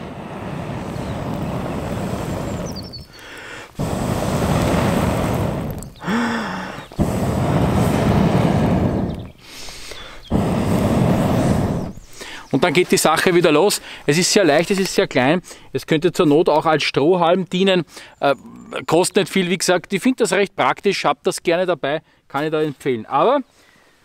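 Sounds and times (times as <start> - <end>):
breaths blown through metal tube: 0.0 - 12.4.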